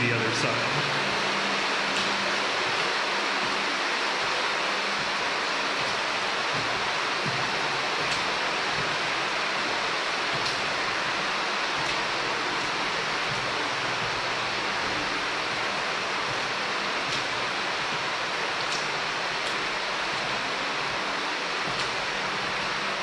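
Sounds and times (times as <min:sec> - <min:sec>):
water rushing through tunnel: 0:00.0 - 0:23.0.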